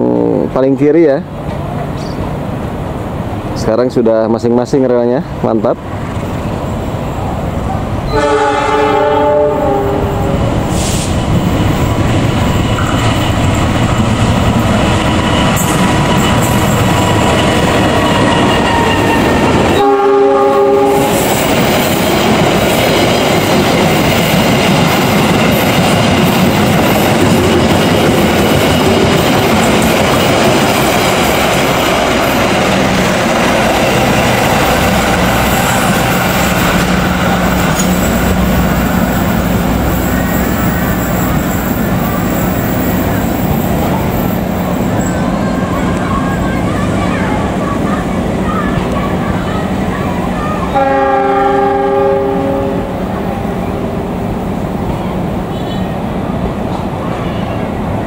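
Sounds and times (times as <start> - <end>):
train horn: 8.1 - 10.5, 18.5 - 21.3, 50.7 - 54.2
train wheels clacking over rail joints: 21.0 - 44.5.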